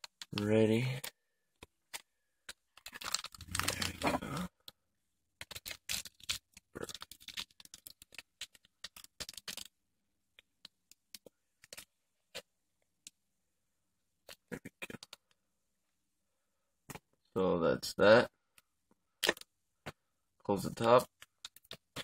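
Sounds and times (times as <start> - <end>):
tape crackles and clicks: 0.0 - 13.2, 14.2 - 15.4, 18.5 - 20.0, 20.8 - 22.0.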